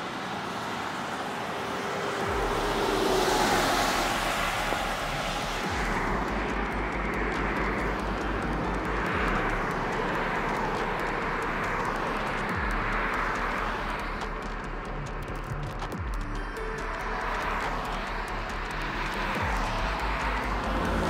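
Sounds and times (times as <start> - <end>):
cars passing on highway: 0.0 - 21.0.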